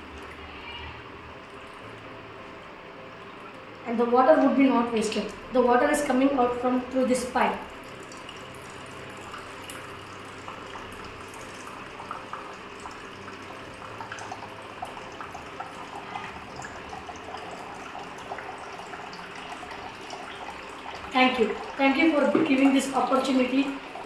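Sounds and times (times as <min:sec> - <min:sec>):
water trickling from pipe: 0:00.0 - 0:24.0
water drips and splashes: 0:07.2 - 0:24.0.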